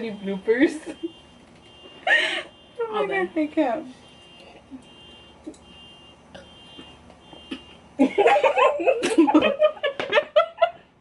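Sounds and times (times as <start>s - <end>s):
young women laughing: 2.0s - 2.6s, 8.0s - 10.8s.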